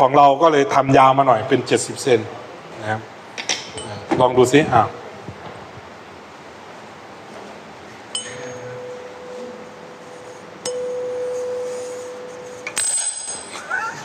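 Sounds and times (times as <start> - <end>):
tuning fork ringing: 8.1 - 13.7.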